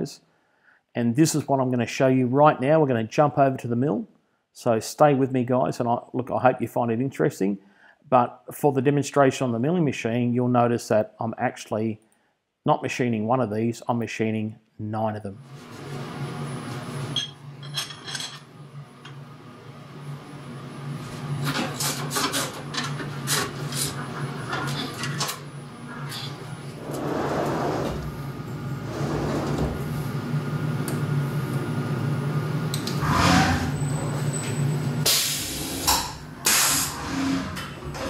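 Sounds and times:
low machine hum: 15.4 - 38.0
rushing sliding noises: 26.0 - 28.2, 28.8 - 29.9.

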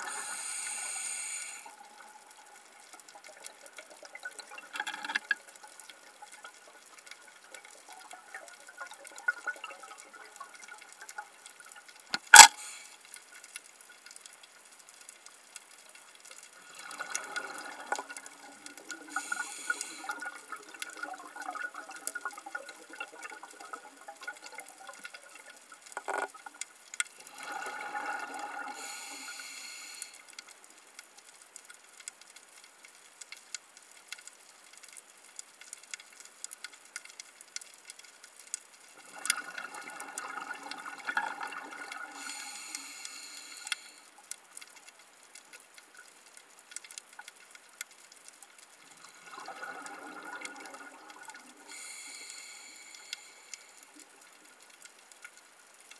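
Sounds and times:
diver breathing through regulator: 0.0 - 1.7, 19.1 - 20.1, 28.7 - 30.2, 42.2 - 44.0, 51.7 - 53.8
reef clicks crackling: 0.0 - 55.9.

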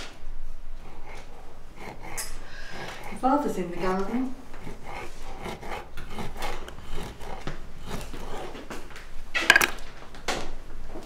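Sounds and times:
knife cutting hard cheese: 1.0 - 8.8, 9.4 - 9.8
knife tapping wooden board: 9.5 - 9.8.

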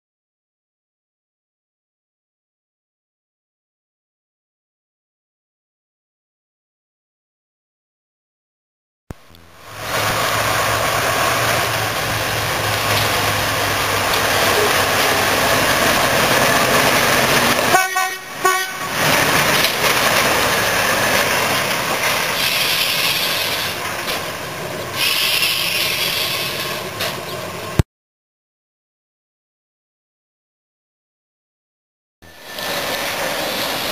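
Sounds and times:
diesel locomotive engine running: 9.1 - 27.8, 32.2 - 33.9
train horn toot: 14.4 - 15.3, 17.7 - 19.0.

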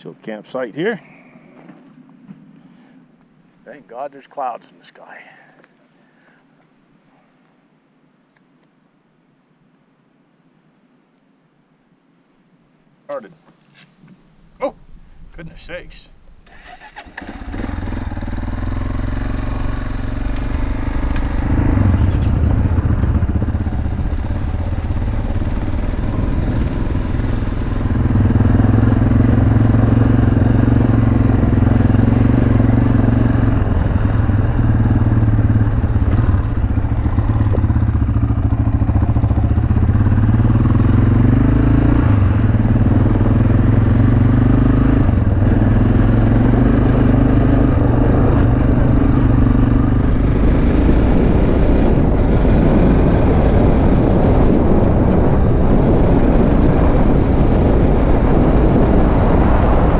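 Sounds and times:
dirt bike engine revving: 16.5 - 59.5.

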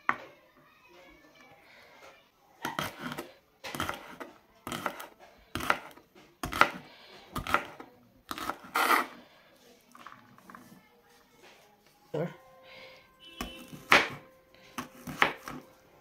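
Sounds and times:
knife chopping on wooden board: 2.6 - 9.1, 13.4 - 14.2, 14.8 - 15.6.

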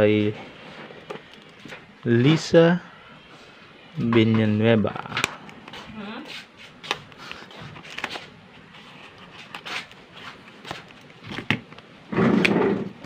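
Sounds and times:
paper packaging rustling: 6.7 - 12.6
scissors snipping paper: 6.8 - 11.5.

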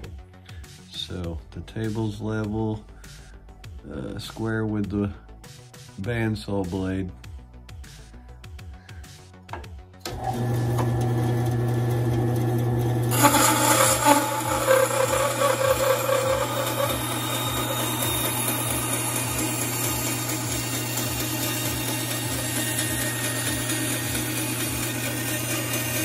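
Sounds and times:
bandsaw motor hum: 10.0 - 26.0
bandsaw blade cutting wood: 10.1 - 26.0.

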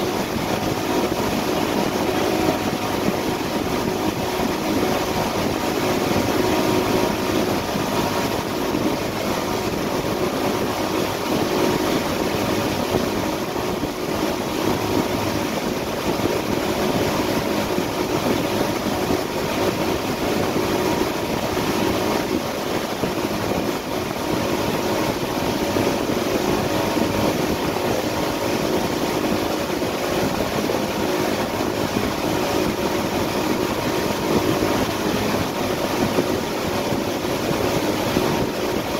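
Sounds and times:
boat engine hum: 0.0 - 38.9
churning wake rushing: 0.0 - 38.9.

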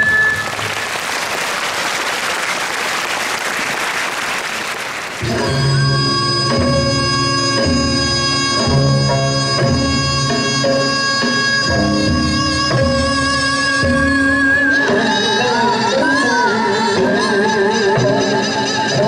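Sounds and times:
traditional dance music wind instruments: 0.0 - 1.0, 5.1 - 19.0
audience applauding: 0.0 - 5.5.

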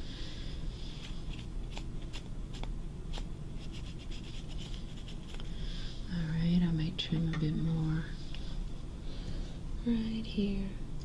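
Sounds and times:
scratchy marking strokes on fabric: 1.0 - 5.4.

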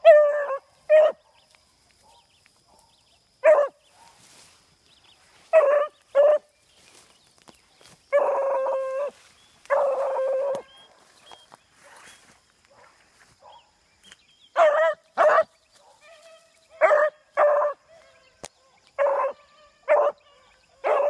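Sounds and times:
dog barking and baying: 0.0 - 4.2, 5.5 - 6.5, 8.1 - 13.8, 14.6 - 18.3, 19.0 - 21.0.

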